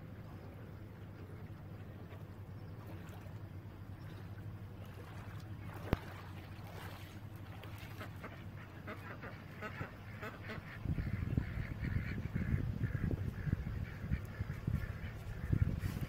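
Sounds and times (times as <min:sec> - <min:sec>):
outboard motor idling: 0:00.0 - 0:10.7
waterfowl calling: 0:01.1 - 0:16.0.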